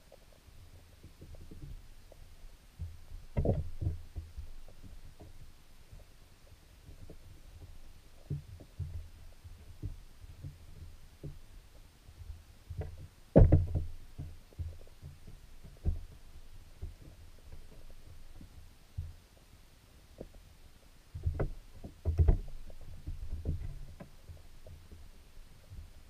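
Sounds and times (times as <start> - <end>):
soft underwater thumps: 1.0 - 6.1, 12.2 - 19.2, 21.2 - 26.0.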